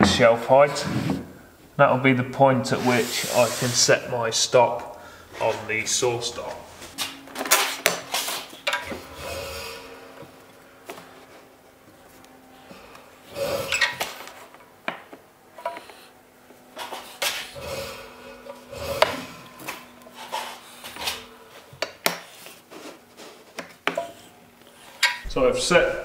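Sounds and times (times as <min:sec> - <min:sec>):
scraping of metal and wood: 0:15.5 - 0:25.3.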